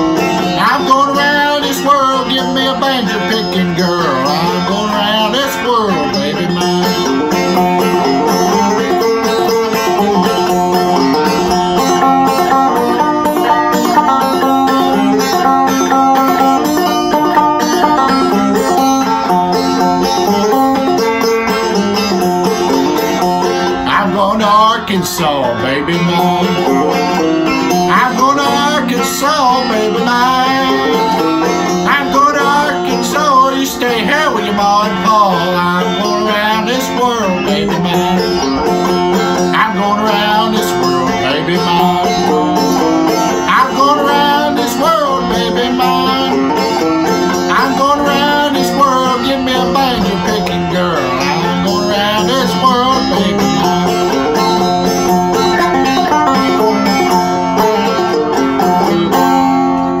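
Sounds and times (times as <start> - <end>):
man singing: 0.0 - 9.0, 23.8 - 54.5
banjo picking: 0.0 - 60.0.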